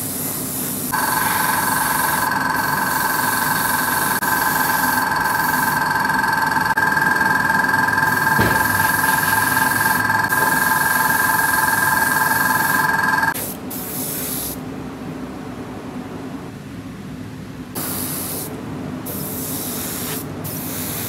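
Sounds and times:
airbrush compressor whine: 0:00.9 - 0:13.4
air hissing: 0:08.3 - 0:10.4.

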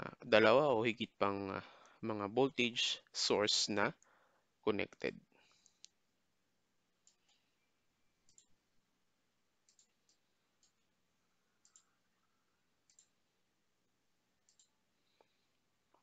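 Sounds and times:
faint computer mouse clicks: 0:08.2 - 0:08.5, 0:09.7 - 0:10.8, 0:11.6 - 0:11.9, 0:12.9 - 0:13.1, 0:14.5 - 0:15.3.

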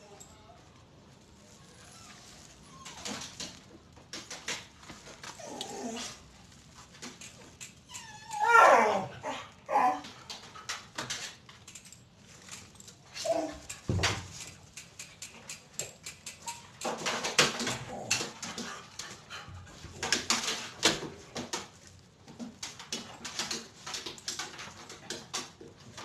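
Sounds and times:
dog whimpering: 0:01.8 - 0:03.3, 0:05.4 - 0:06.2, 0:07.9 - 0:10.1.

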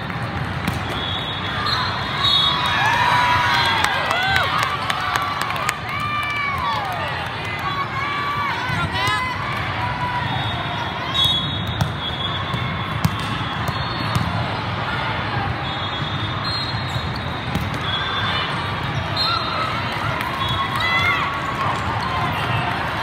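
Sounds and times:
crowd chatter in a gym: 0:00.0 - 0:23.0
volleyball hits: 0:00.3 - 0:01.5, 0:11.5 - 0:14.6, 0:16.9 - 0:18.0.

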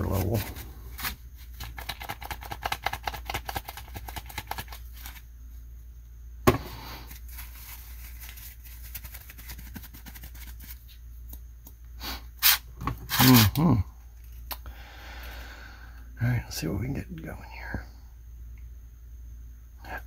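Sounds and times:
faint handling noise: 0:00.0 - 0:01.8
paper towel crinkling: 0:00.0 - 0:02.1, 0:07.0 - 0:10.9.

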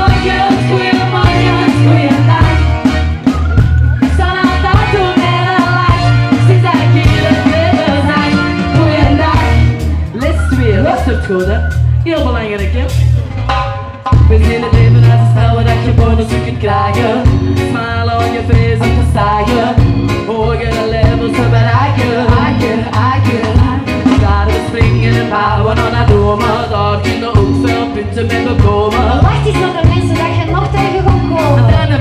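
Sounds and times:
bass line: 0:00.0 - 0:32.0
drum kit beat: 0:00.0 - 0:32.0
melodic instruments: 0:00.0 - 0:32.0
person singing: 0:14.2 - 0:32.0.

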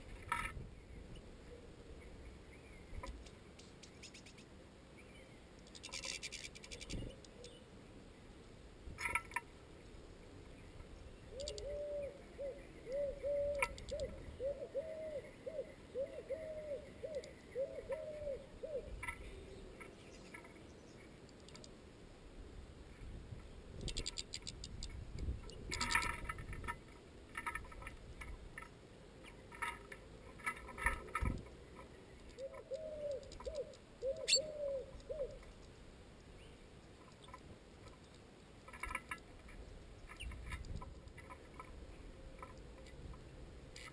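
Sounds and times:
birds pecking at metal feeder: 0:05.6 - 0:07.0, 0:11.4 - 0:11.7, 0:36.8 - 0:43.2
bird's low hooting call: 0:11.3 - 0:19.7, 0:32.4 - 0:35.4.

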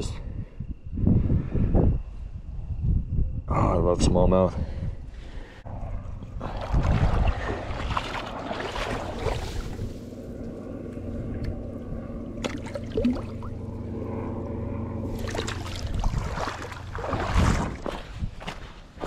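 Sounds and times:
low engine-like hum: 0:05.3 - 0:19.0
small water splashes: 0:06.3 - 0:09.9, 0:12.4 - 0:13.6, 0:15.1 - 0:18.6.

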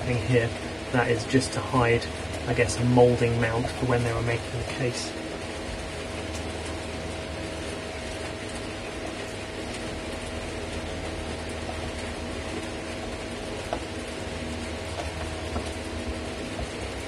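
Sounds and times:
electric fan whirring: 0:00.0 - 0:17.0.

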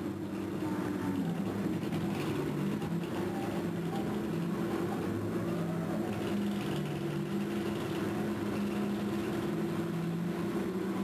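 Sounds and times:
mining shovel machinery humming: 0:00.0 - 0:11.0.

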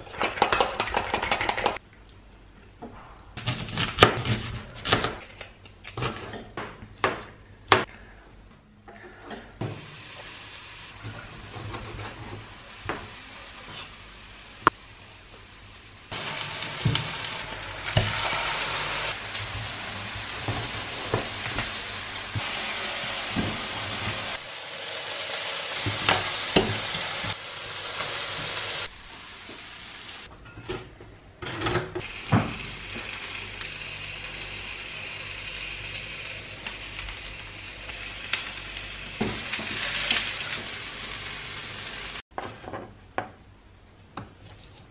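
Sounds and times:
food sizzling in a pan: 0:09.7 - 0:30.3, 0:32.1 - 0:42.2.

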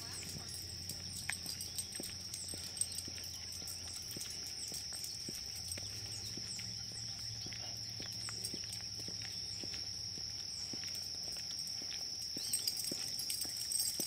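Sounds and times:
insects droning: 0:00.0 - 0:14.0
light footsteps on pavement: 0:00.0 - 0:14.0.

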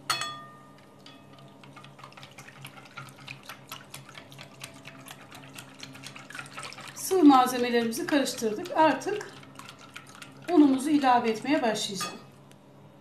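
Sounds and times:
glass clinking on glass bowl: 0:00.0 - 0:01.5, 0:12.0 - 0:12.3
whisk wires ticking on glass: 0:00.1 - 0:01.9
whisk splashing in mixture: 0:01.0 - 0:11.9.

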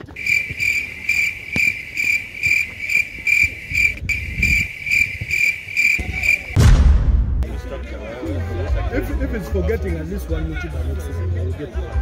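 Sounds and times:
insect chirping: 0:00.0 - 0:06.6
low wind rumble: 0:01.8 - 0:07.6.

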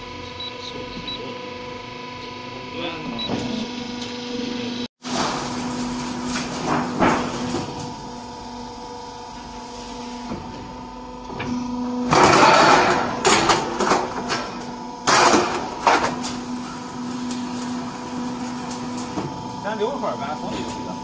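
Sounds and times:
roll forming machine humming: 0:00.0 - 0:21.0
steel sheet scraping and rattling: 0:05.0 - 0:08.0, 0:12.1 - 0:21.0.

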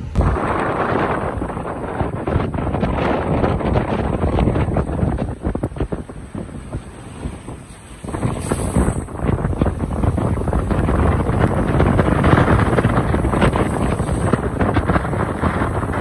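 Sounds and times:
wind buffeting the microphone: 0:00.0 - 0:16.0.

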